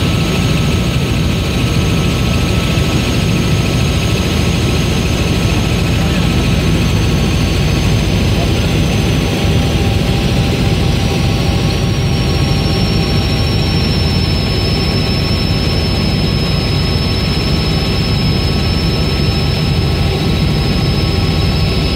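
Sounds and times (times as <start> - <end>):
aircraft engine drone in cabin: 0.0 - 21.9.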